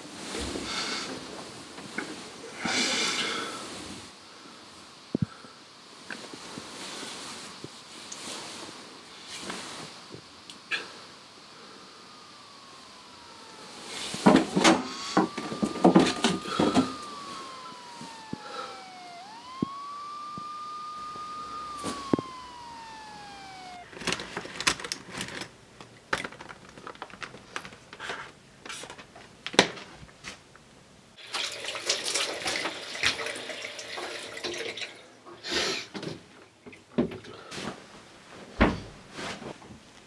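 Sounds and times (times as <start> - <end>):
high tone sliding down: 11.8 - 24.9
thuds: 38.6 - 39.1.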